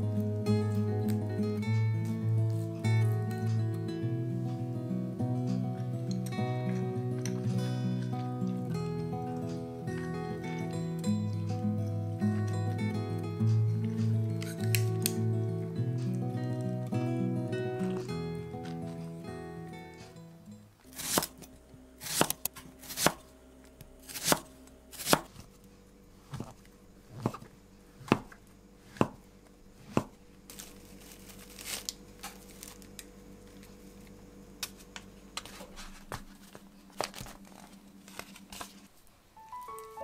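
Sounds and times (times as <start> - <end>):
knife chopping on wooden board: 20.9 - 21.4, 22.0 - 23.2, 24.1 - 25.4, 27.1 - 29.2, 29.8 - 30.2
mushrooms tearing and rustling: 30.4 - 39.0.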